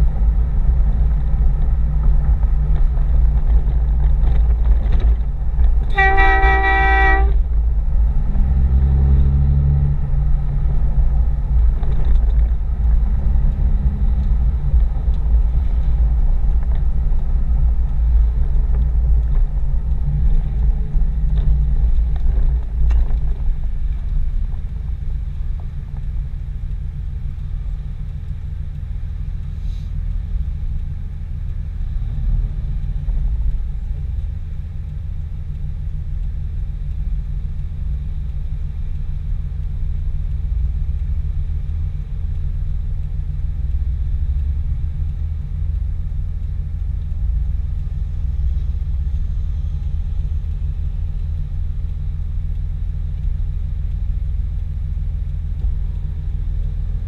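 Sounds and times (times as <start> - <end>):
diesel engine running: 0.0 - 57.0
vehicle horn toot: 5.9 - 7.4.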